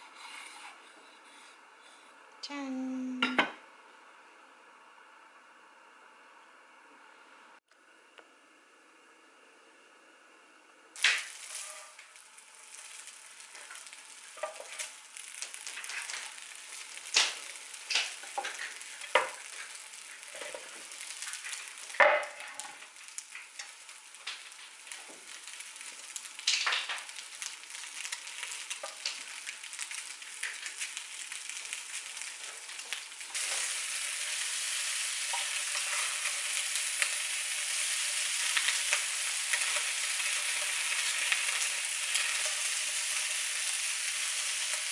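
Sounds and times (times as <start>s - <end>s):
food sizzling in a frying pan: 11.0s - 44.9s.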